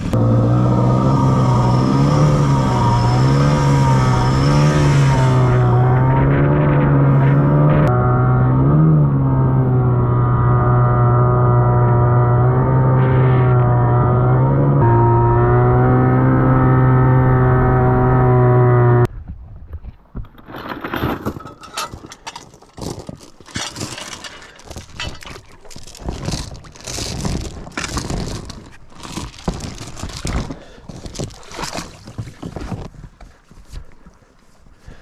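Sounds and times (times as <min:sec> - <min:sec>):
outboard motor drone: 0:00.0 - 0:19.1
gear and rope being handled: 0:19.8 - 0:35.0.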